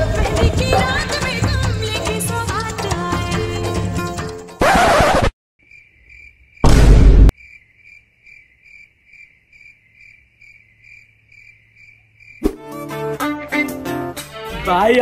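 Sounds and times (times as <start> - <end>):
cricket chirping: 5.6 - 6.7, 7.3 - 12.6
deep boom effect: 6.6 - 7.3.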